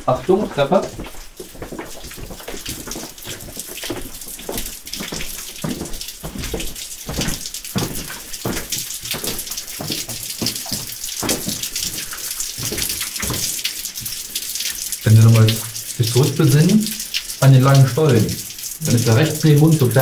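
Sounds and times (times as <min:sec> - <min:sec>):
water trickling and splashing: 0:00.0 - 0:20.0
footsteps on floor: 0:00.1 - 0:13.5.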